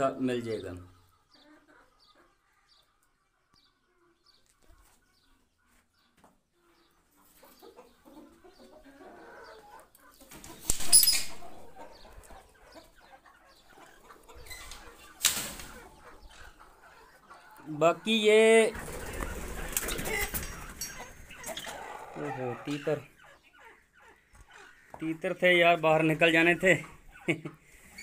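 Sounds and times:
birds flapping wings: 0:18.7 - 0:20.7.

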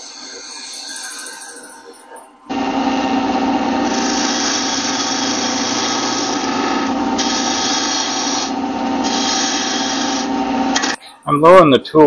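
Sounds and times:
wood lathe motor hum: 0:02.5 - 0:11.0
gouge hissing shaving wood: 0:03.6 - 0:10.6.

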